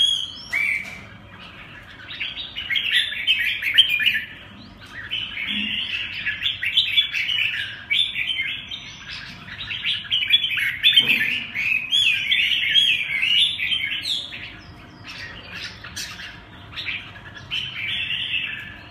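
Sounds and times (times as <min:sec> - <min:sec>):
birds singing and calling: 0:00.0 - 0:18.9.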